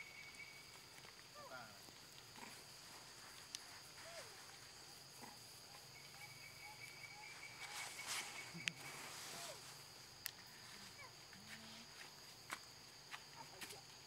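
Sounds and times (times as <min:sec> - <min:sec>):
faint chirps: 0:00.0 - 0:01.9, 0:02.9 - 0:11.9
insect drone: 0:00.0 - 0:14.0.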